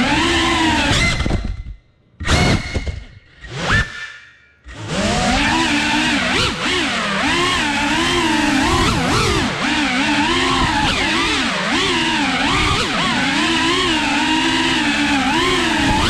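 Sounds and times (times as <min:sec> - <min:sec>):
quadcopter motors whining: 0:00.0 - 0:16.0.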